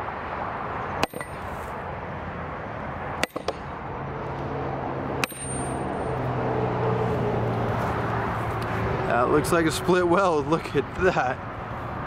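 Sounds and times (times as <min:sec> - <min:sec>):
vehicle engine hum: 0:00.0 - 0:12.0
hammer blows ringing on anvil: 0:01.0 - 0:01.5, 0:03.2 - 0:03.7, 0:05.2 - 0:06.2.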